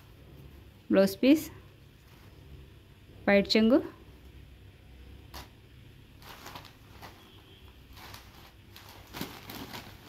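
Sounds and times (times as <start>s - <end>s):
cloth rustling: 6.2s - 10.0s.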